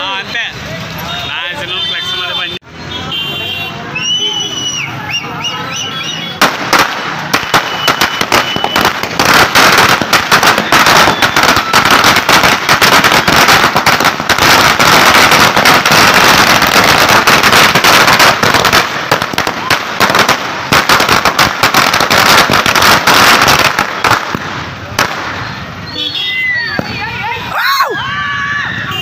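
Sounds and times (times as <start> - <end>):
firecrackers cracking: 6.0 - 25.8.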